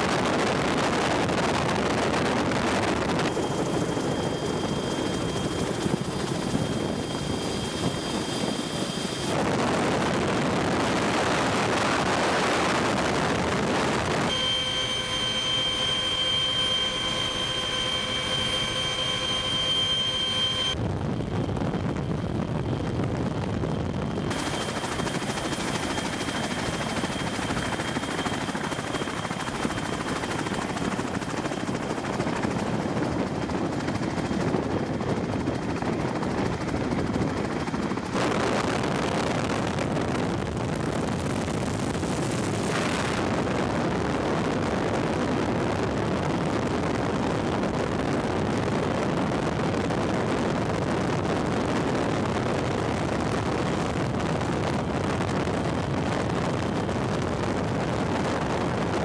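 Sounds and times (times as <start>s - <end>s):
helicopter rotor and engine drone: 0.0s - 59.0s
thin high whine: 0.9s - 20.8s, 24.0s - 39.8s.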